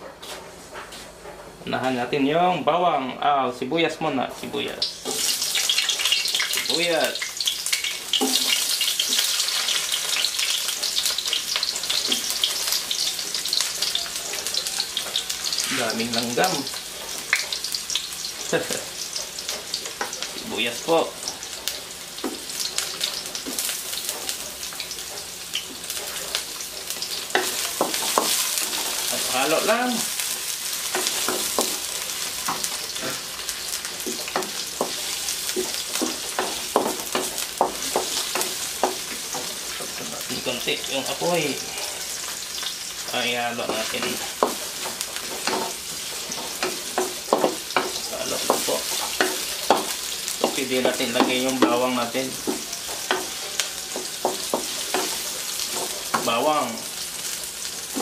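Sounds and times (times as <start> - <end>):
onions sizzling in oil: 4.4 - 58.0
wooden spatula knocking on pan: 34.0 - 40.0, 43.7 - 45.8, 46.6 - 56.3.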